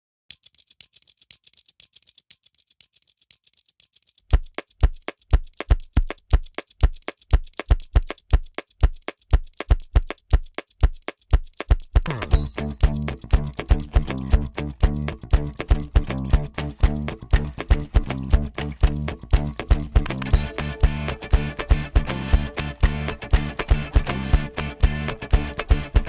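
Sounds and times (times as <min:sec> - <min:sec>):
light clicks on stationery: 0:00.3 - 0:12.0, 0:12.7 - 0:20.4.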